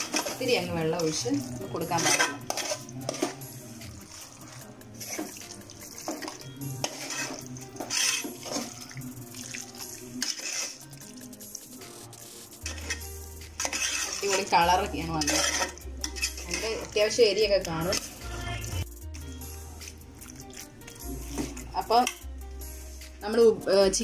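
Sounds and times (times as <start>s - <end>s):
spoon scraping metal pot: 0.0s - 18.4s
background music with bass: 0.0s - 24.0s.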